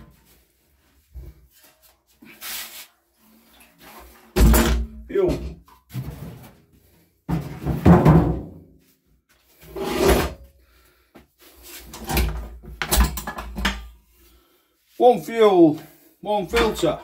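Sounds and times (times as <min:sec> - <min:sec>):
hard objects clunking and rattling: 0:04.2 - 0:08.7, 0:11.9 - 0:14.0.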